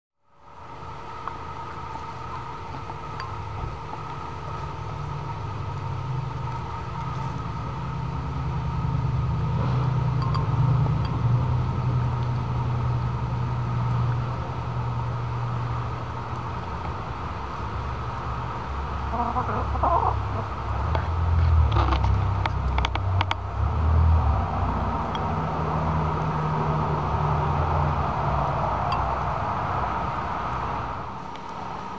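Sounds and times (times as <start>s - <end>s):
hen clucking softly: 19.1s - 20.5s.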